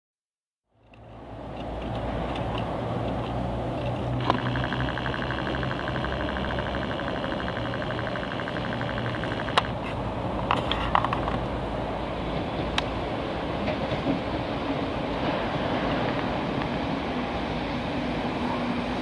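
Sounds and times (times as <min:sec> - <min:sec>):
train engine hum: 0:00.8 - 0:19.0
sharp clicks: 0:01.6 - 0:09.8
rapid pulsing high tone: 0:04.2 - 0:09.8.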